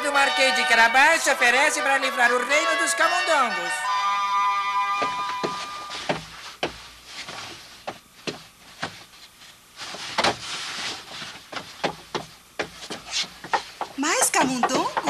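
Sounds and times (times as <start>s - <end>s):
knocks and thuds on wooden door: 11.6s - 15.0s.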